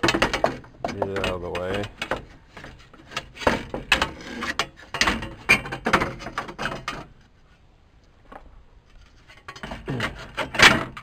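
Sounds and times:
engine parts clicking and rattling: 0:00.0 - 0:07.2.

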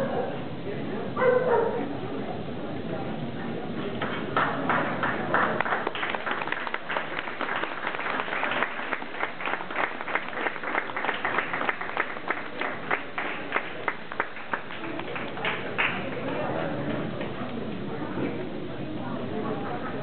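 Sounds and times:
audience applauding: 0:04.0 - 0:16.3.

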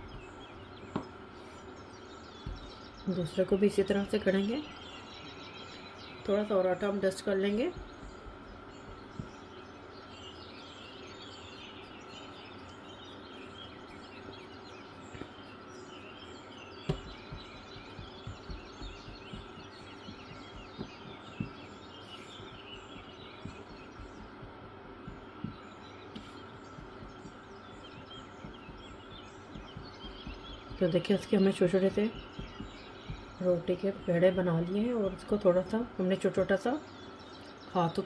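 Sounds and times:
birds chirping: 0:00.0 - 0:38.0
hands patting dough: 0:02.3 - 0:04.7, 0:06.2 - 0:09.6, 0:13.0 - 0:35.9.

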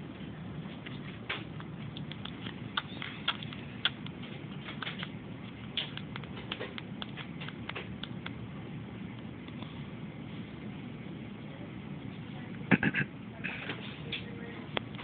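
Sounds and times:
low background noise: 0:00.0 - 0:15.0
baby sucking on a pacifier: 0:00.8 - 0:08.2.

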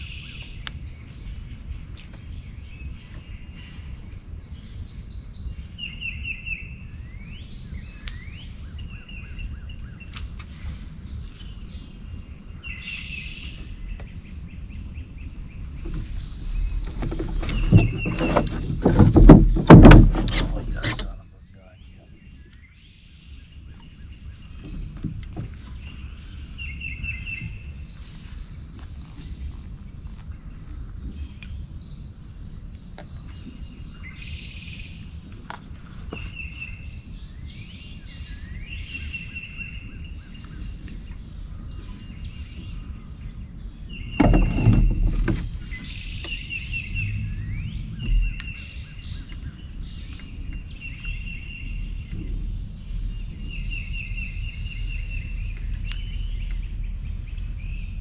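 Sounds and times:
birds chirping: 0:00.0 - 0:58.0
loud bump: 0:16.7 - 0:21.1
steady low rumble: 0:45.4 - 0:58.0.

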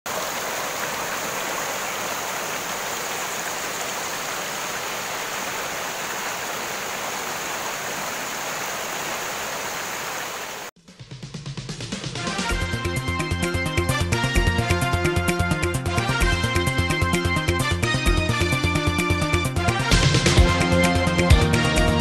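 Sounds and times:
mountain stream and waterfall rushing: 0:00.0 - 0:10.7.

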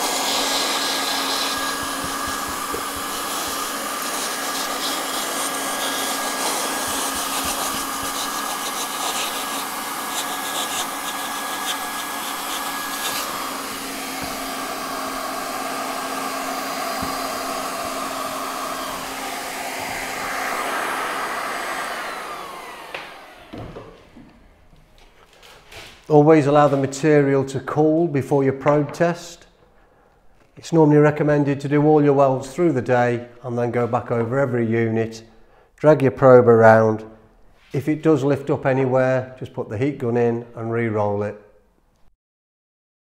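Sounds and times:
hot-air welding gun whining: 0:00.0 - 0:23.6.

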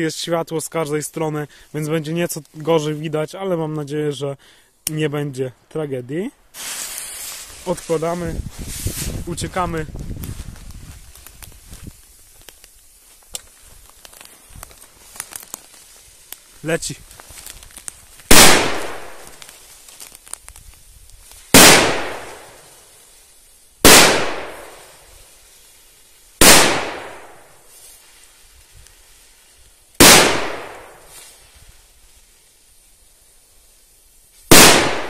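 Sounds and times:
firecracker bangs: 0:18.3 - 0:19.4, 0:21.5 - 0:22.7, 0:23.8 - 0:25.1, 0:26.4 - 0:27.5, 0:30.0 - 0:31.2, 0:34.5 - 0:35.0.

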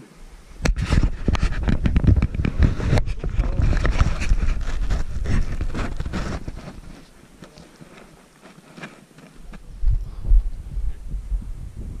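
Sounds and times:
camera handling rubbing and scraping: 0:00.6 - 0:09.7.

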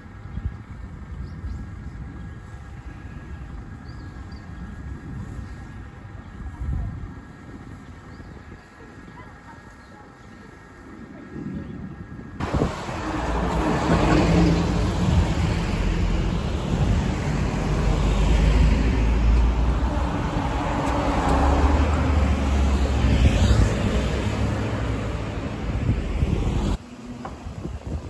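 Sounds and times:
passing traffic: 0:00.0 - 0:28.0
garbage truck engine driving past: 0:12.4 - 0:23.0.

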